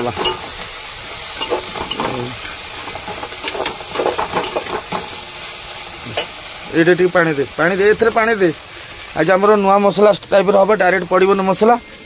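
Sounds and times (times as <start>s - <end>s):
onions sizzling in hot oil: 0.0s - 12.0s
spoon scraping and clinking pot: 0.2s - 0.5s, 1.4s - 2.2s, 2.9s - 5.1s.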